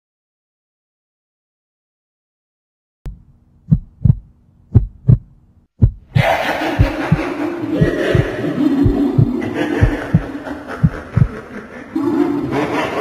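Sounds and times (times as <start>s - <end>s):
heartbeat double thumps: 3.1s - 11.4s.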